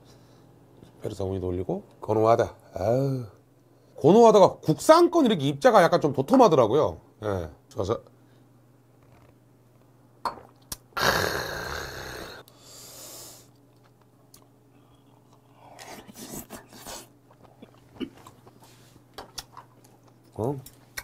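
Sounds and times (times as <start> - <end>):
man exhaling loudly: 11.0 - 13.2
chewing: 13.6 - 21.0.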